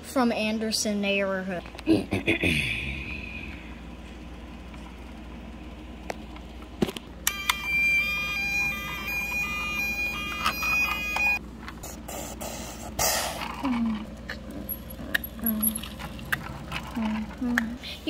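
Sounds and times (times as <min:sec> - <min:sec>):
toy electronic two-tone siren: 0:07.2 - 0:11.4.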